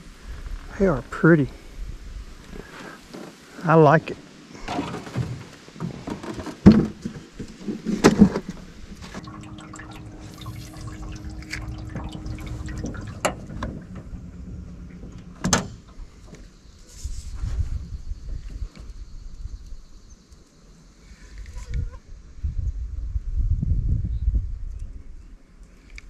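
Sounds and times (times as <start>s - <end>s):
water splashes: 8.4s - 16.6s
water dripping: 9.0s - 16.5s
steady low hum: 9.0s - 18.0s.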